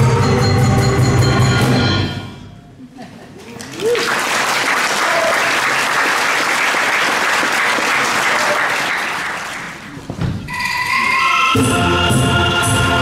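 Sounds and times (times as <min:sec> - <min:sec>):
audience applauding: 0:03.5 - 0:10.1.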